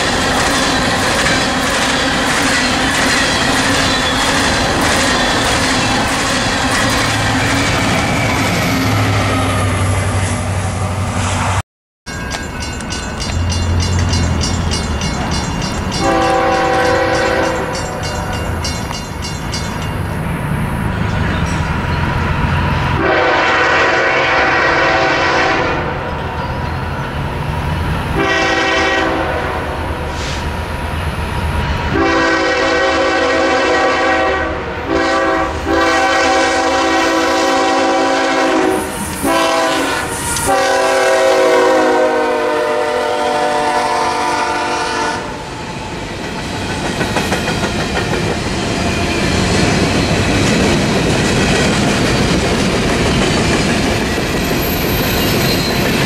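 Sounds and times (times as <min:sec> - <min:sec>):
train rumbling: 0:00.0 - 0:56.0
locomotive air horn: 0:16.0 - 0:17.8, 0:22.9 - 0:26.1, 0:28.2 - 0:30.4, 0:31.9 - 0:45.4.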